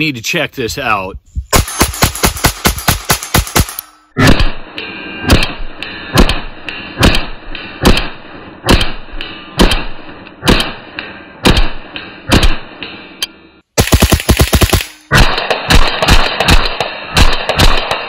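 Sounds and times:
pistol shots: 1.6s - 4.6s, 6.2s - 9.0s, 9.6s - 10.8s, 11.4s - 12.7s, 13.8s - 18.0s.

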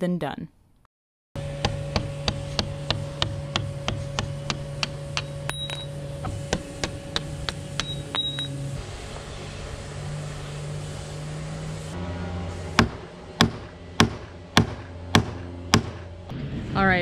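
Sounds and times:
steady hum: 1.4s - 17.0s
hammer striking steel punch: 1.5s - 8.5s, 12.8s - 16.1s.

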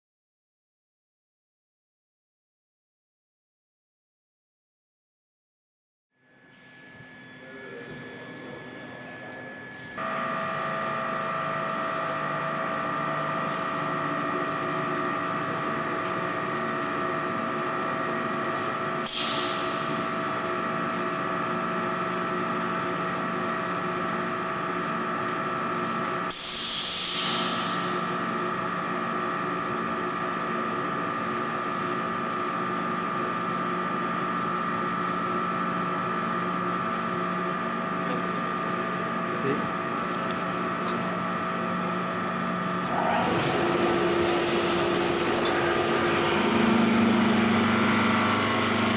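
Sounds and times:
milling machine whine: 6.3s - 26.3s, 27.3s - 48.9s
hiss: 26.3s - 27.7s.

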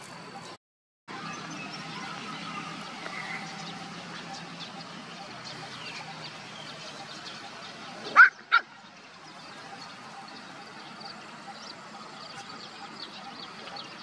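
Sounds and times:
puppy yipping: 8.2s - 8.7s.

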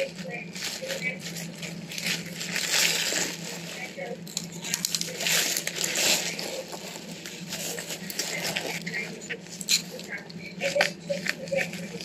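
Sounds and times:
plastic bag crinkling: 0.0s - 12.0s
steady low hum: 0.0s - 12.0s.

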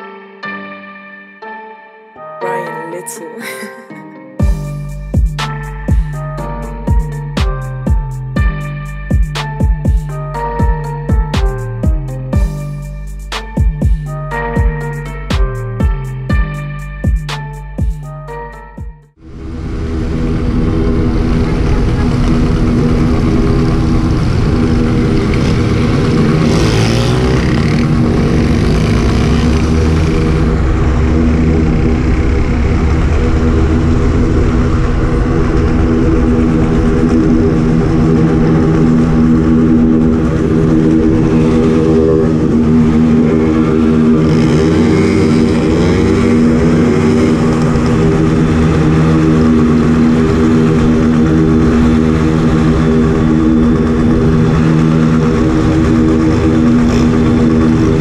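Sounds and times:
motorcycle engine running: 4.4s - 18.1s, 19.2s - 58.0s
other motorcycles revving: 19.8s - 58.0s.

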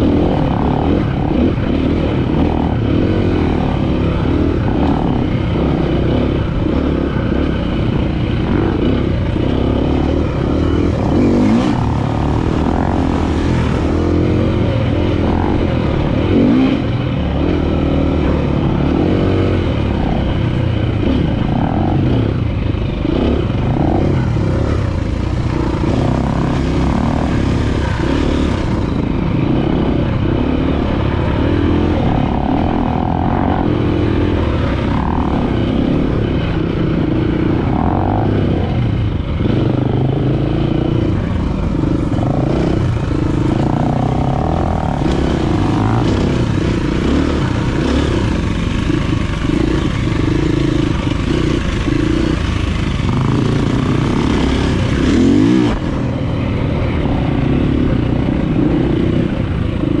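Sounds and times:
dirt bike engine revving: 0.0s - 60.0s.

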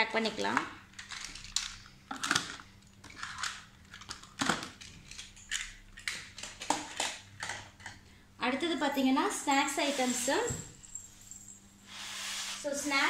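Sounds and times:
toy cars knocking against bottles: 1.0s - 7.9s.

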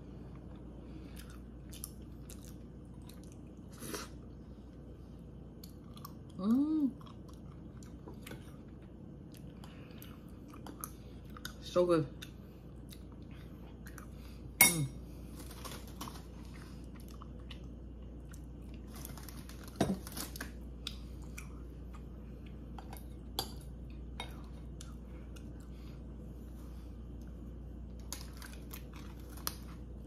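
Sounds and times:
chewing: 0.3s - 3.8s.

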